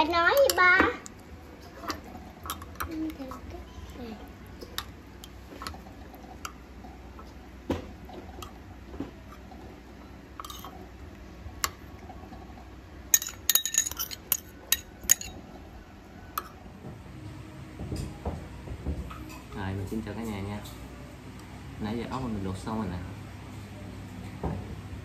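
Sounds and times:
spoon stirring liquid: 0.0 - 16.6
spoon clinking ceramic bowl: 13.1 - 15.4.

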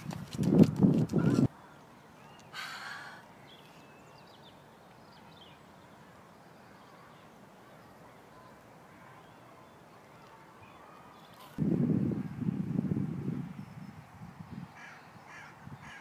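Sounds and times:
distant birds chirping: 13.5 - 16.0.

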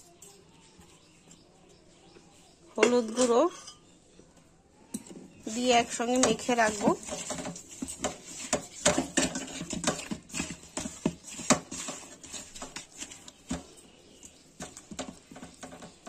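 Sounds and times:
wet fish slapping in metal bowl: 5.5 - 16.0.

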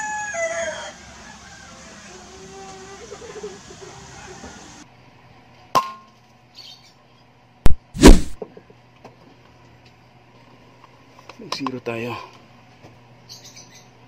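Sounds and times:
air rifle shots: 8.0 - 8.4.

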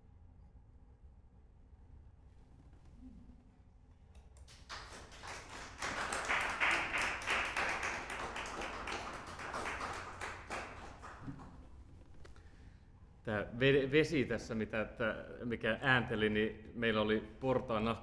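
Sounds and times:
small audience applauding: 4.4 - 12.0.

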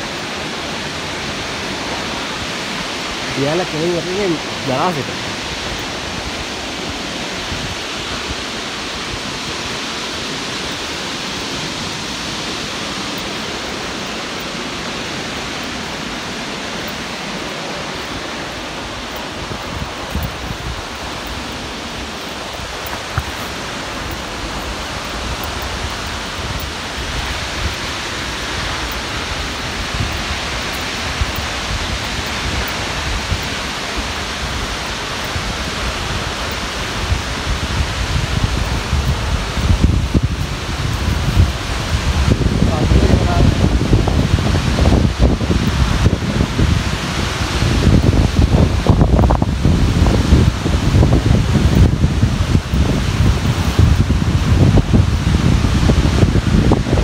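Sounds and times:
waterfall rushing: 0.0 - 57.0.

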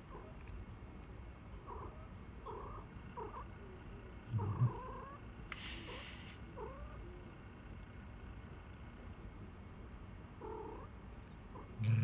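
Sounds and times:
short hiss: 5.5 - 6.4.

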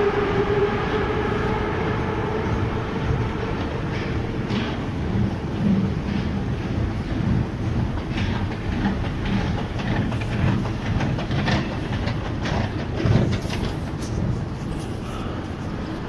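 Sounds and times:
escalator machinery rumble: 0.0 - 16.0
escalator steps clacking: 3.9 - 14.6.

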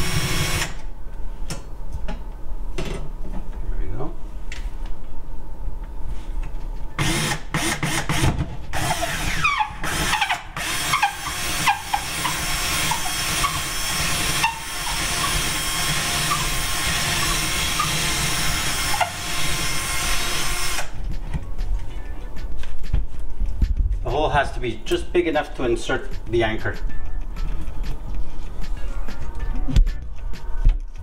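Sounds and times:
cordless drill boring drywall: 0.0 - 0.8, 7.0 - 20.9.

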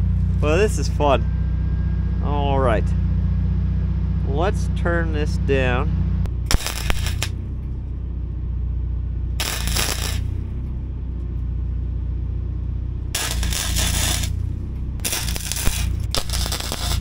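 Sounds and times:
steady low hum: 0.0 - 17.0
welding arc crackle: 6.5 - 7.4, 9.4 - 10.4, 13.2 - 14.4, 15.0 - 17.0.

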